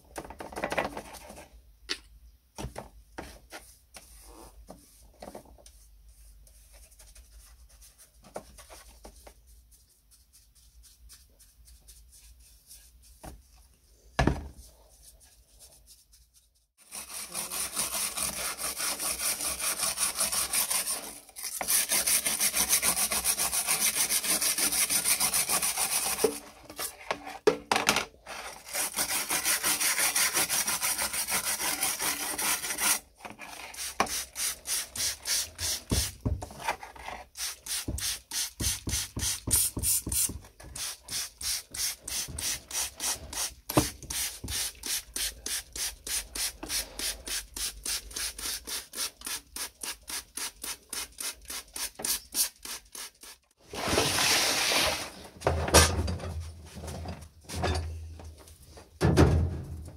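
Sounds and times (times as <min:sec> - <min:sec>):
brush scrubbing wet metal plate: 0:14.6 - 0:27.0, 0:28.6 - 0:36.2.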